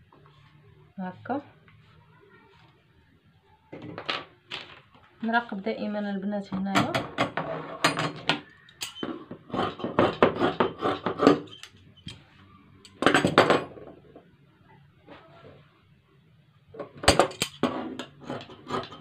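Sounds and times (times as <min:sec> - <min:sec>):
shears clattering on wooden table: 0:06.5 - 0:12.2, 0:16.8 - 0:19.0.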